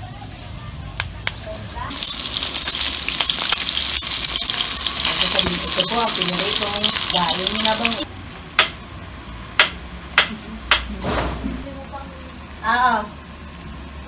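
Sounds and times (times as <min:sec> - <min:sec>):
food frying in hot oil: 0:01.8 - 0:08.1.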